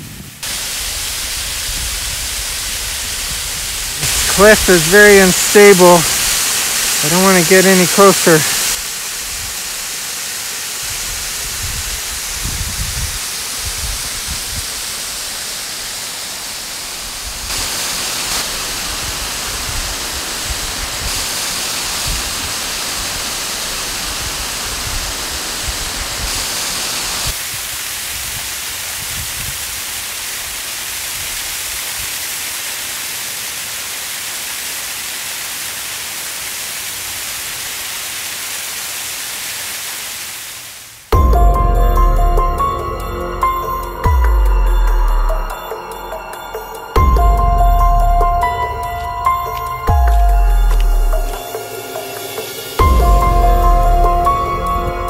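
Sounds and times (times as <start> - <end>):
waterfall rushing: 0.0 - 55.0
wind rumbling on microphone: 10.9 - 15.2, 18.9 - 21.2, 27.4 - 29.9.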